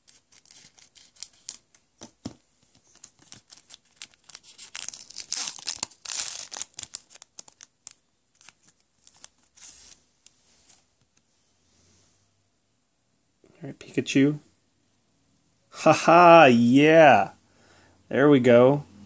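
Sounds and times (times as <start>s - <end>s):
foil crinkling and tearing: 0.0s - 1.6s, 2.9s - 9.9s.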